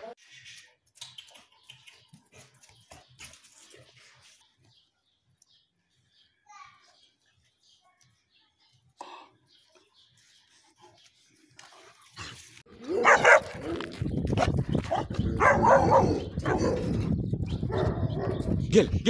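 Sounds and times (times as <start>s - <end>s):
dog barking: 12.9s - 13.6s, 14.9s - 16.9s, 17.7s - 18.5s.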